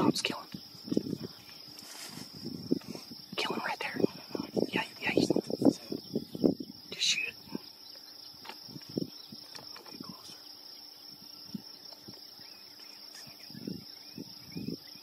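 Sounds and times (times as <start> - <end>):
insects droning: 0.0 - 15.0
faint rustles and soft knocks: 0.8 - 5.9.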